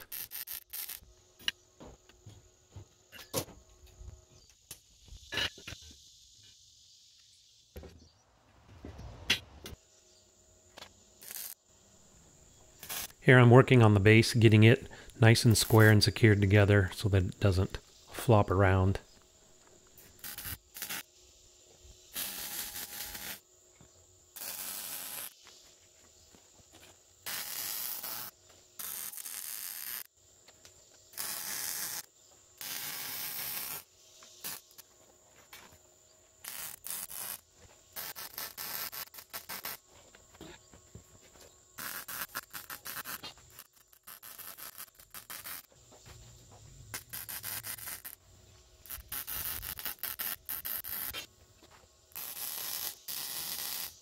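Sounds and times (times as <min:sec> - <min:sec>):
welder crackling hiss: 0:00.0 - 0:01.1, 0:11.2 - 0:11.6, 0:12.8 - 0:13.2, 0:19.8 - 0:21.1, 0:21.8 - 0:23.4, 0:24.3 - 0:25.7, 0:26.8 - 0:30.1, 0:31.1 - 0:34.9, 0:36.4 - 0:39.8, 0:41.8 - 0:45.7, 0:46.8 - 0:51.3, 0:52.1 - 0:54.0.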